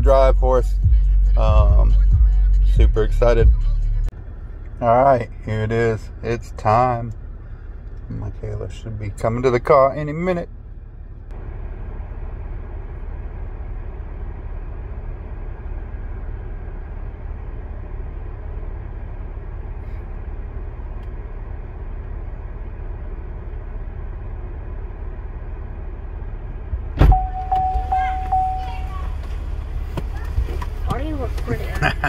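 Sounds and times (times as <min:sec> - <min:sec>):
car cabin rumble and hiss: 0:04.1 - 0:32.0
car door unlatching: 0:27.0 - 0:31.8.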